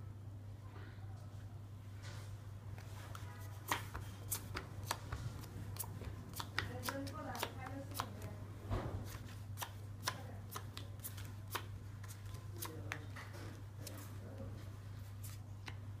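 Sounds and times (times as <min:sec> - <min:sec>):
playing cards clicking: 0:05.8 - 0:08.2.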